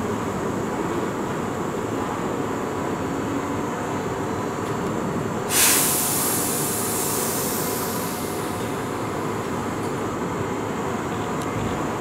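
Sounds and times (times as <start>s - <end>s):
train rumble: 4.6s - 12.0s
air brakes releasing hiss: 5.5s - 9.5s.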